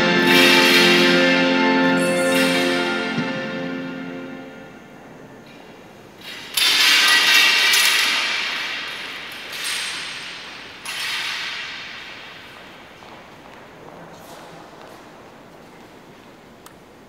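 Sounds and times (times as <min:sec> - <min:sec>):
crashing cymbal hits: 0:00.0 - 0:05.0.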